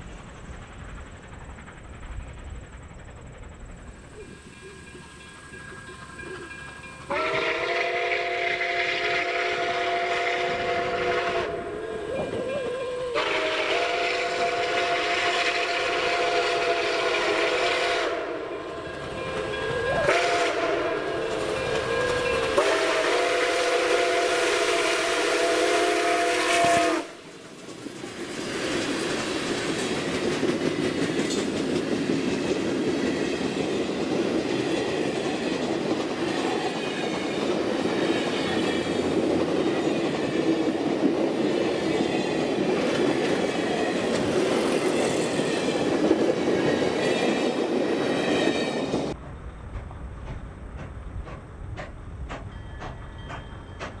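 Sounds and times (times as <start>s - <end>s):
train wheels clattering over rail joints: 0.0s - 9.4s, 18.7s - 23.1s, 26.5s - 54.0s
steam locomotive chime whistle: 4.0s - 27.3s, 52.3s - 54.0s.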